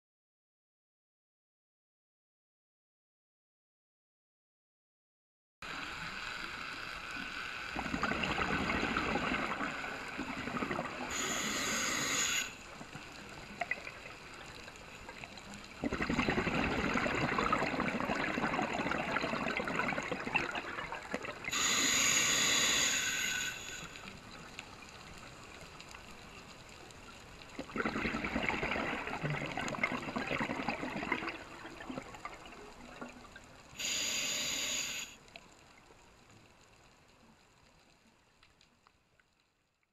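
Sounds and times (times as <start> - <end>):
regulator inhale hiss: 11.0 - 12.7, 21.5 - 24.2, 33.8 - 35.2.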